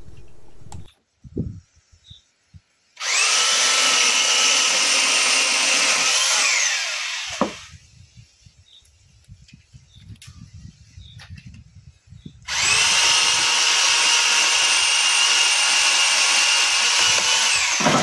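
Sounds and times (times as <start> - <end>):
electric pole saw whining: 3.0 - 7.8, 12.5 - 18.0.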